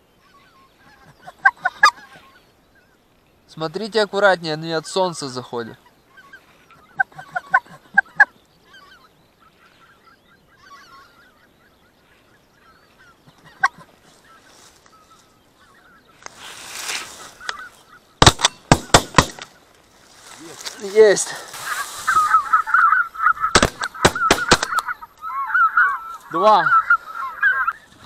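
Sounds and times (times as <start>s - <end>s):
geese honking: 0.0s - 3.0s, 3.7s - 28.0s
shotgun shots: 18.2s - 19.5s, 23.5s - 24.9s.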